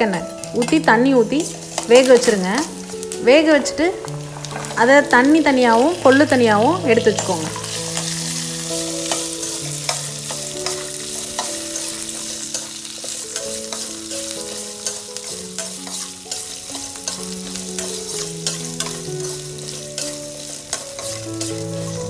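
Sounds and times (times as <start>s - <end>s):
spices sizzling in oil: 0.0s - 22.0s
metal spoon scraping pan: 0.4s - 22.0s.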